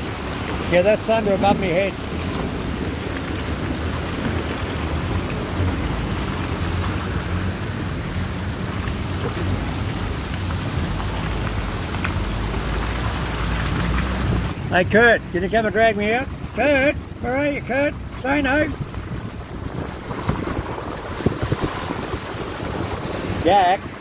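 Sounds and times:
thunder rumbling: 0.0 - 15.7, 18.0 - 24.0
heavy rain: 0.0 - 24.0.

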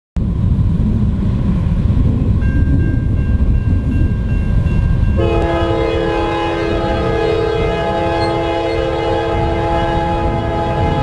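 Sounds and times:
low train rumble: 0.2 - 11.0
train horn: 5.1 - 11.0.

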